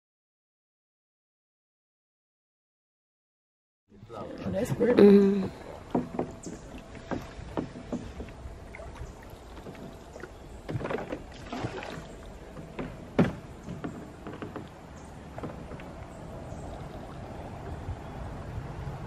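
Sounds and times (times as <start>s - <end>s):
water sloshing: 4.0s - 18.5s
wooden knocks: 4.7s - 8.4s, 9.6s - 11.3s, 12.5s - 16.0s.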